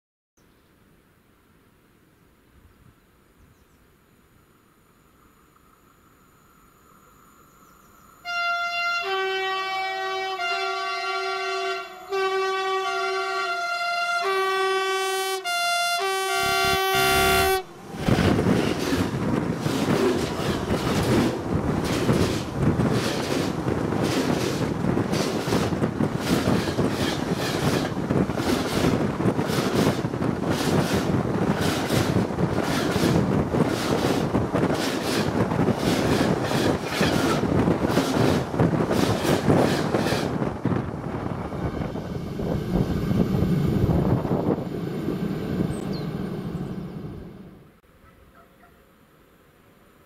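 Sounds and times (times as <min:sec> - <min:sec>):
locomotive horn blasts: 0:08.2 - 0:18.3
train rushing and clattering past: 0:17.4 - 0:47.7
wheels knocking on rails: 0:18.1 - 0:40.8.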